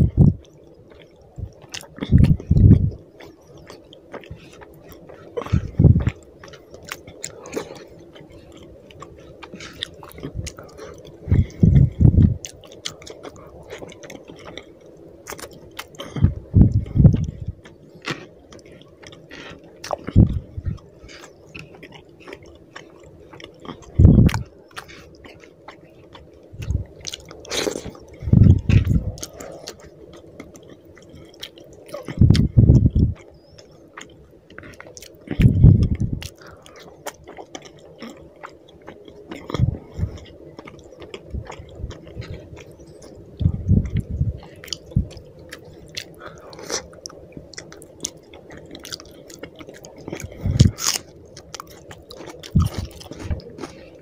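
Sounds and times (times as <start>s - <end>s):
wet chewing mouth smacks: 15.3s - 53.8s.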